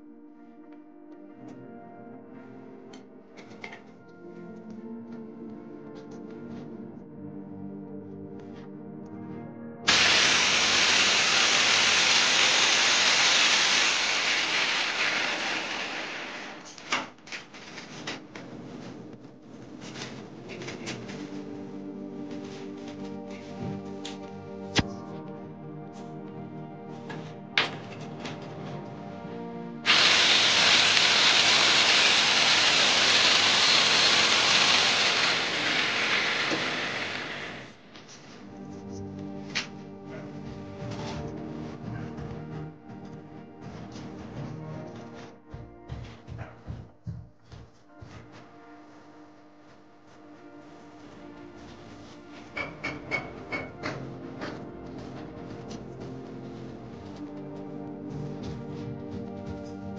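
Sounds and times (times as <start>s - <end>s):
background music: 0.0s - 59.9s
grinder cutting into wall: 9.9s - 16.9s, 29.8s - 37.8s
loud steady hiss: 9.9s - 16.9s, 29.8s - 38.3s.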